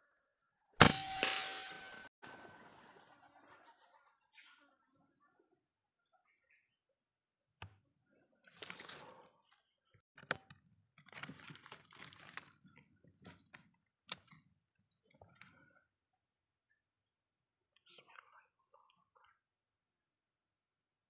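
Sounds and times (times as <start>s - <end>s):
high-pitched insect drone: 0.0s - 2.1s.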